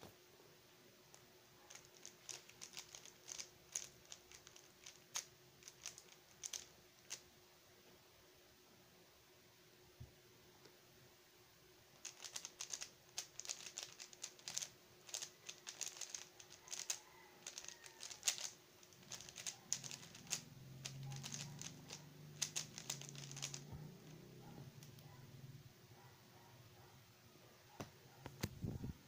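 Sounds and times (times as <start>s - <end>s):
puzzle cube plastic clicks: 1.7s - 7.2s, 12.0s - 25.1s.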